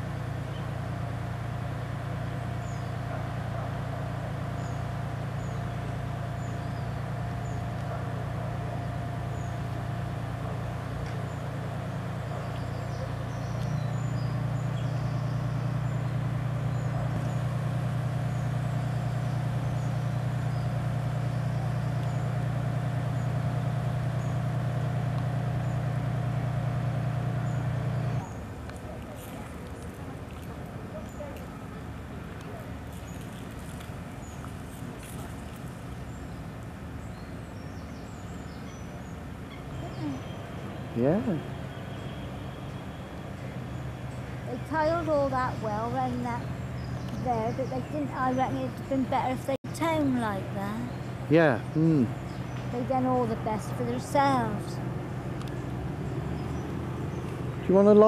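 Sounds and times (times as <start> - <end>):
crane diesel engine running: 0.0 - 58.0
faint bird chirps: 12.2 - 17.6, 37.0 - 57.8.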